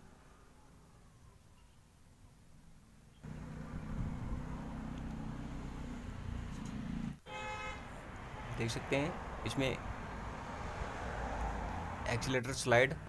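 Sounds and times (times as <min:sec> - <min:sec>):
vehicle engine running: 0:03.2 - 0:07.2.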